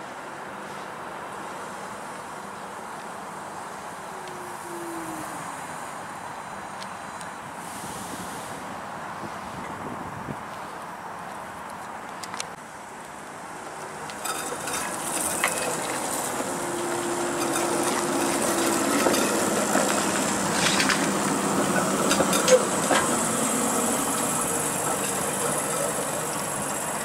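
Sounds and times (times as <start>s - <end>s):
streetcar rolling past with whine: 0.0s - 10.7s, 12.2s - 27.0s
wheels clicking on track: 10.5s - 27.0s.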